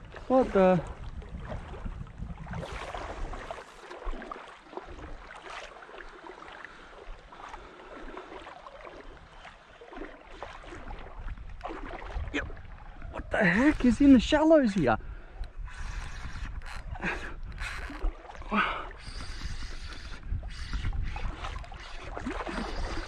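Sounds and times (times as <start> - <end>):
wind noise on microphone: 0.0 - 4.2, 10.6 - 23.0
seawater sloshing and splashing: 0.0 - 23.0.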